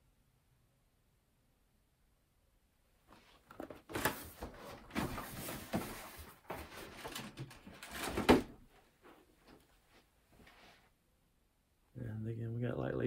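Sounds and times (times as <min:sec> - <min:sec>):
cardboard box rustling and scraping: 0:03.6 - 0:08.5.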